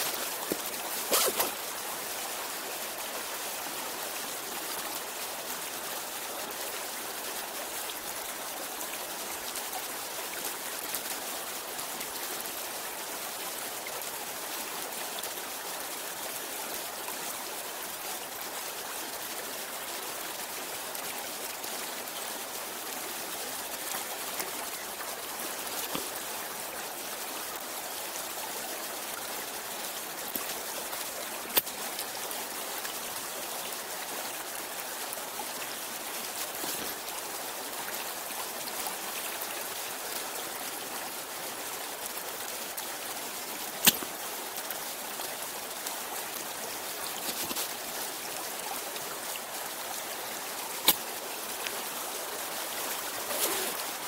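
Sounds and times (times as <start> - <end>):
stream rushing over stones: 0.0 - 54.0.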